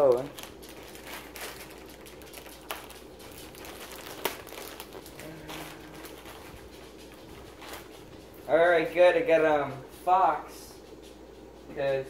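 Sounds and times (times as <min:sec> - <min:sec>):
packaging crinkling: 0:00.0 - 0:08.4.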